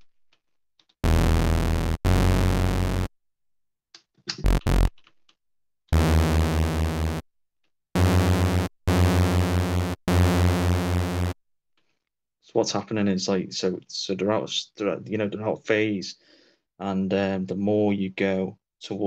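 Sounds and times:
short synth blips: 0:01.0 - 0:03.1, 0:04.4 - 0:04.9, 0:06.0 - 0:07.2, 0:08.0 - 0:11.4
synthesizer bass notes: 0:01.0 - 0:03.1, 0:04.4 - 0:04.9, 0:05.9 - 0:07.2, 0:08.0 - 0:11.4.

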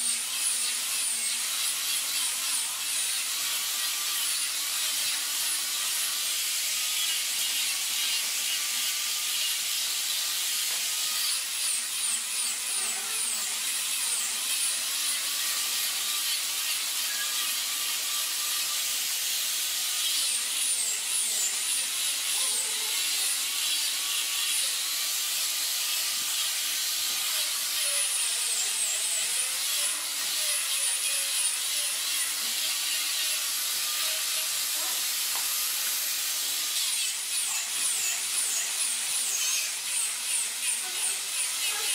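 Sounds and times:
angle grinder sanding wood: 0:00.0 - 0:41.9.

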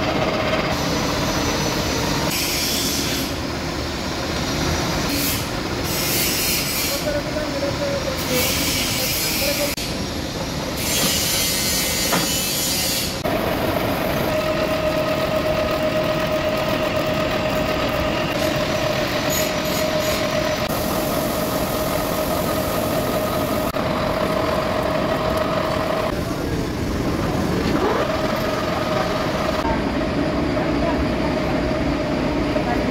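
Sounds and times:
metal lathe running: 0:04.6 - 0:30.2
lathe tool cutting metal: 0:10.8 - 0:26.1.

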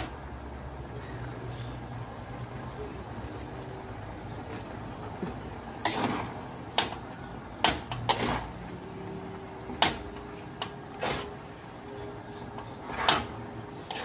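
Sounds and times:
utensil scraping against a wok: 0:05.8 - 0:06.9, 0:08.0 - 0:08.6, 0:10.9 - 0:11.5, 0:12.7 - 0:14.0.

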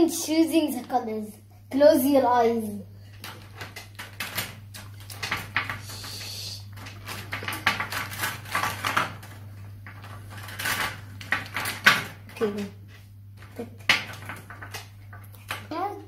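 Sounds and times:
steady low hum: 0:00.0 - 0:16.0
markers clicking and rattling: 0:06.8 - 0:12.6, 0:13.4 - 0:15.7.

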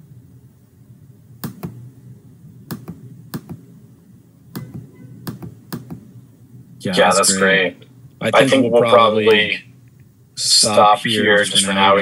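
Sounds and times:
faint low hum: 0:00.0 - 0:12.0
sharp clicks: 0:01.4 - 0:01.8, 0:02.7 - 0:03.6, 0:04.5 - 0:06.1.

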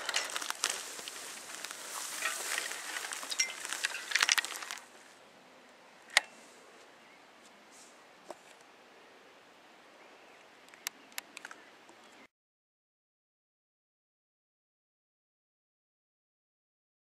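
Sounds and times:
footsteps through dry grass: 0:00.0 - 0:05.2.

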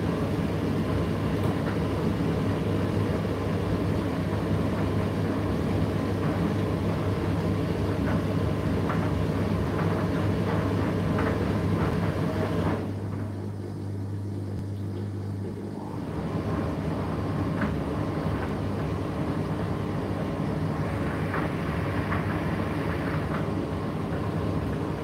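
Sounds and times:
rush of drum and fan: 0:00.0 - 0:13.0, 0:16.0 - 0:25.0
tumble dryer motor hum: 0:00.0 - 0:25.0.

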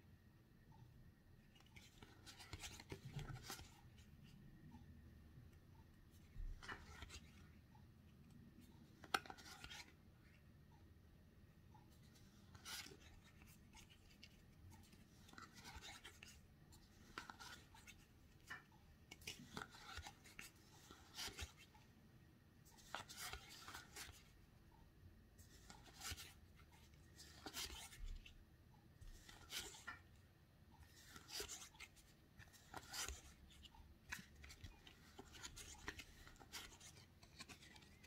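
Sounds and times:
playing cards sliding: 0:09.0 - 0:09.9, 0:12.2 - 0:16.4, 0:30.9 - 0:38.0.

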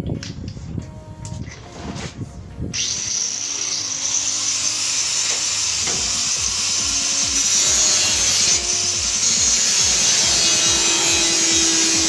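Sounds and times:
angle grinder whining: 0:02.8 - 0:12.0
grinder rasping on sheet metal: 0:02.8 - 0:12.0.

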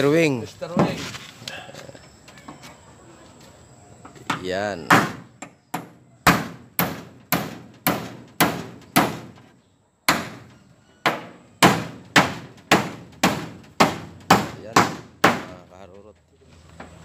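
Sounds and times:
hammer striking nails in metal sheet: 0:04.9 - 0:09.4, 0:10.1 - 0:15.7.

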